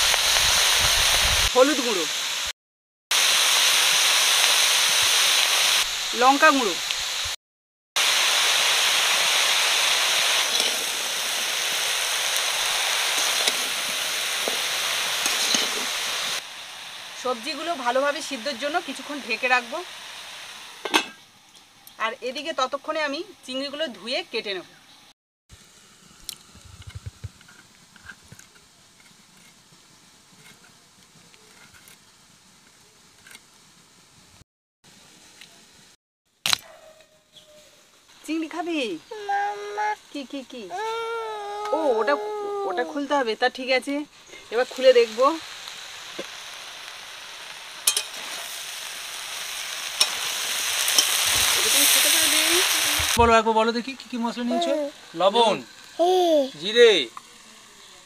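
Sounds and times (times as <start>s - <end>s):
food sizzling in hot oil: 0.0s - 7.4s, 8.0s - 24.5s, 37.9s - 58.0s
sharp loud click: 36.4s - 36.7s.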